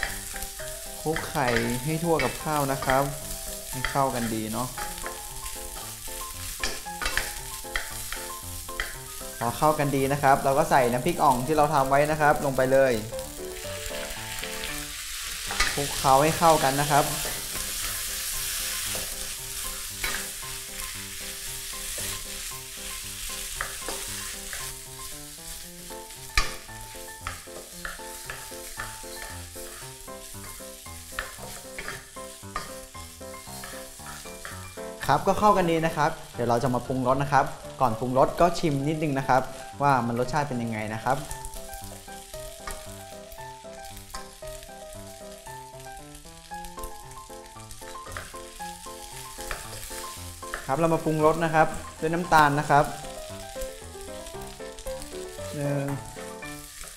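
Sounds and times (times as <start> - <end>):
rice sizzling in a wok: 0.0 - 56.9
soft background music: 0.0 - 56.9
wooden spatula scraping a pan: 15.1 - 34.6.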